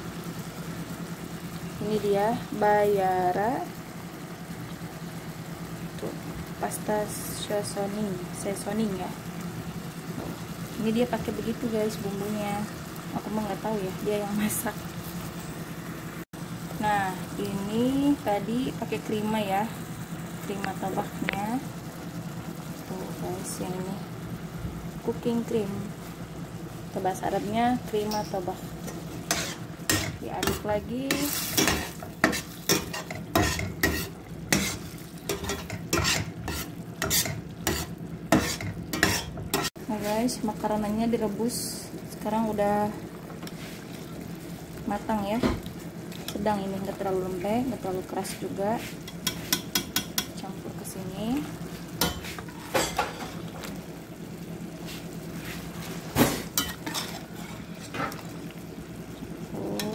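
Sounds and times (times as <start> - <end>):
utensil scraping a metal pot: 28.9 - 39.7.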